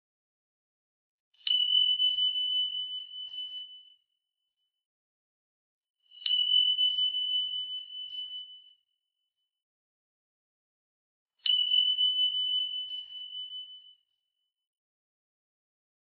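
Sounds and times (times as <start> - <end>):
high bell-like tone ringing: 11.4 - 14.5.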